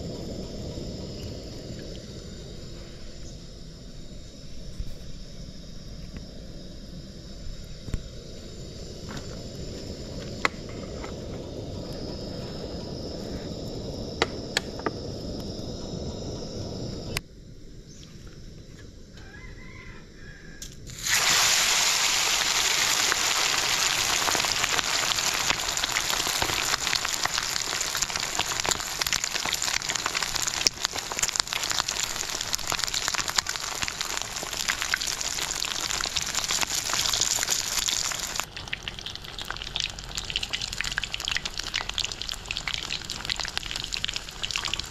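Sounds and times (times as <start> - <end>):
low rumble of heating oil: 0.0 - 44.9
chicken deep-frying in hot oil: 20.9 - 44.9.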